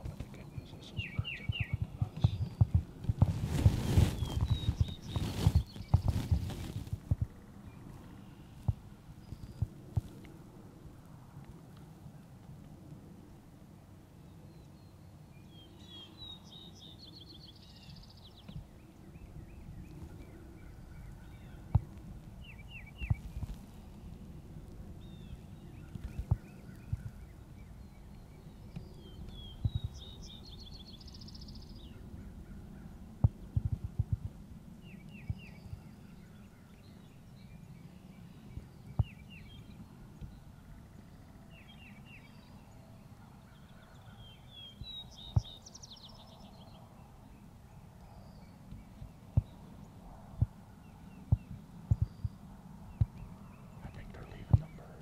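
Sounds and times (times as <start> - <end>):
songbirds singing: 0.0 - 10.3, 14.2 - 34.0, 34.7 - 55.0
steady low rumble: 18.6 - 37.5, 48.8 - 55.0.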